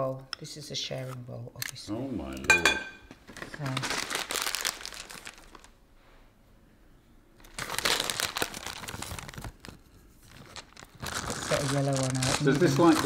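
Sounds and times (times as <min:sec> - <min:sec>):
plastic sweet packet crinkling: 0:03.3 - 0:05.8, 0:07.4 - 0:13.0.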